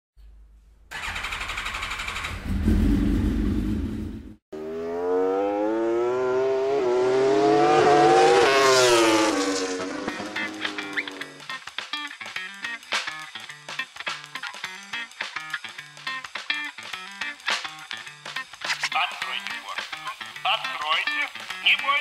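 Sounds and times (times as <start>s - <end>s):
rapid engine rattle: 0.9s - 4.3s
engine accelerating past: 0.9s - 11.4s
engine revving rumble: 0.9s - 11.4s.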